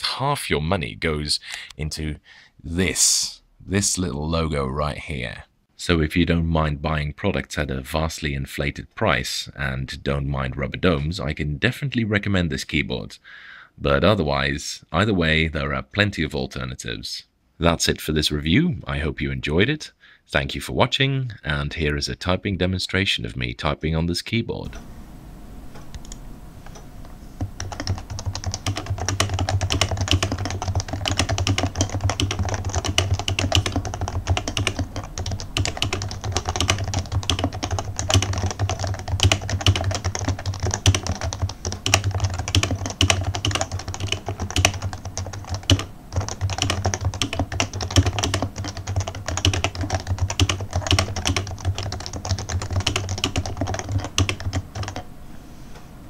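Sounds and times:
rapid keyboard typing: 27.4 - 55.1.

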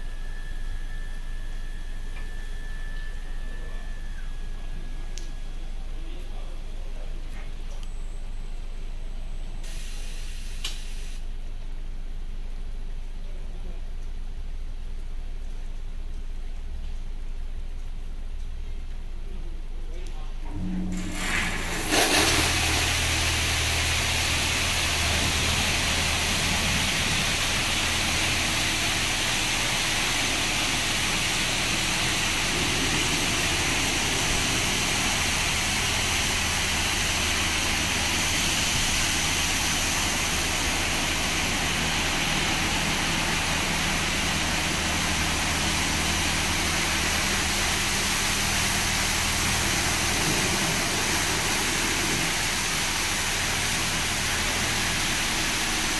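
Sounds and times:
high-pressure water spray hiss: 9.6 - 11.2, 21.2 - 55.9
steady low hum: 11.3 - 55.9.

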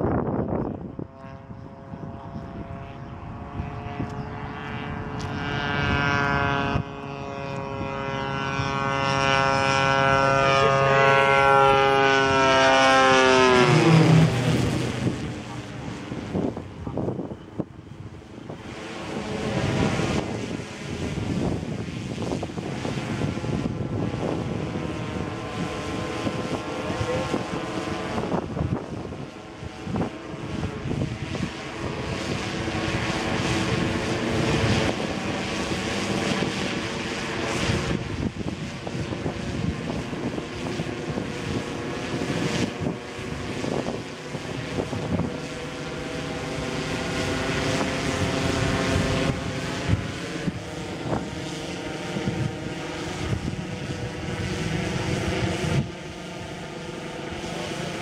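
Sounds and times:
model aircraft propeller droning: 0.0 - 58.0
wind on microphone: 0.0 - 58.0.

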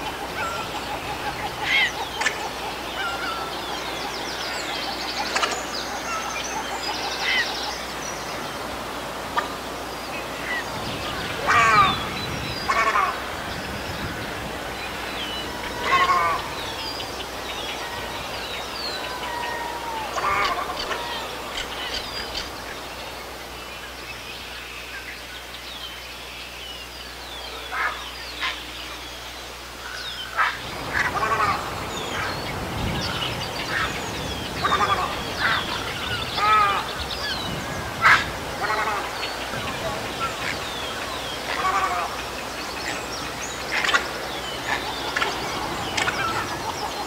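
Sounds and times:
heron calls: 0.0 - 4.5, 10.4 - 13.3, 14.0 - 22.5, 29.8 - 32.4, 33.0 - 42.3
small birds chirping: 0.0 - 47.0.

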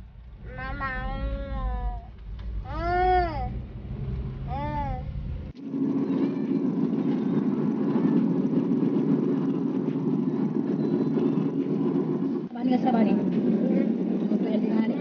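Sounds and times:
vehicle road and engine noise: 0.0 - 15.0.

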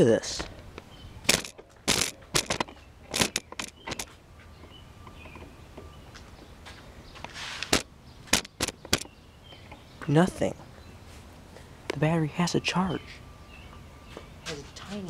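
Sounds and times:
footsteps on concrete: 2.0 - 9.0, 14.1 - 14.8.

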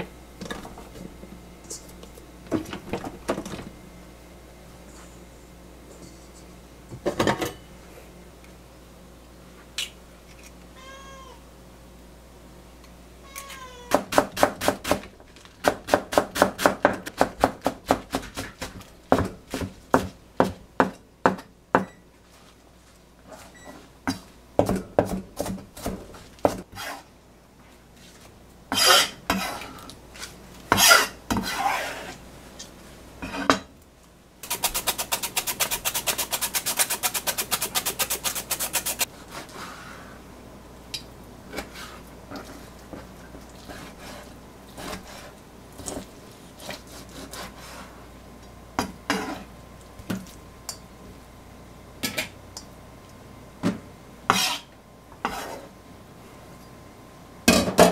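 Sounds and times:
carrot rasping on hand slicer: 34.4 - 39.1.

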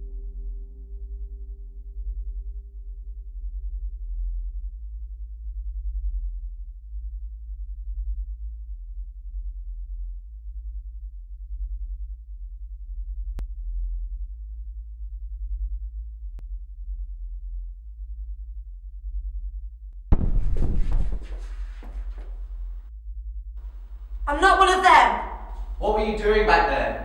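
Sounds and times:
loud crash: 20.1 - 22.4.

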